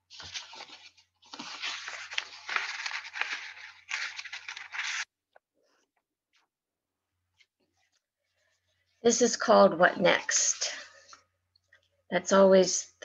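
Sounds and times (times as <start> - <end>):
paper rustling and crinkling: 0.0 - 5.1.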